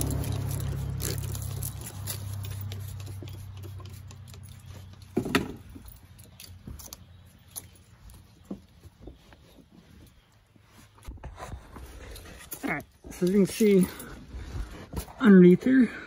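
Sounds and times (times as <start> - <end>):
passing vehicle engine hum: 0.0 - 6.5.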